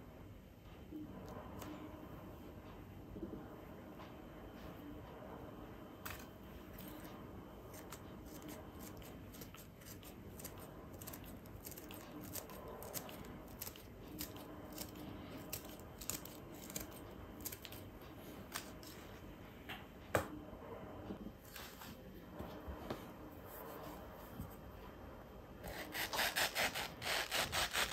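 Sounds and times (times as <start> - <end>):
scissors snipping chili peppers: 7.7 - 17.8.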